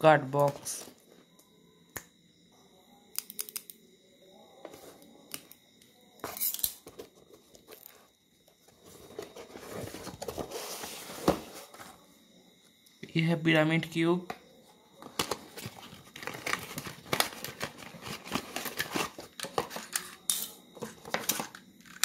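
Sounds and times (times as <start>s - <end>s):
packaging rustling and crinkling: 8.7s - 11.9s, 15.0s - 20.0s.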